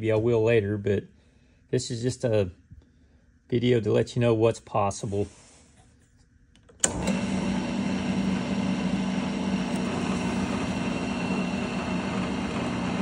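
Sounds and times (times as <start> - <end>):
lathe motor and gears humming: 6.8 - 13.0.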